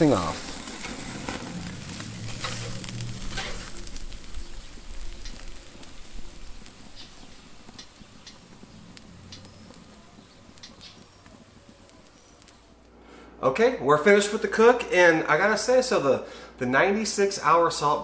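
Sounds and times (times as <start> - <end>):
steak sizzling and crackling: 0.0 - 12.9.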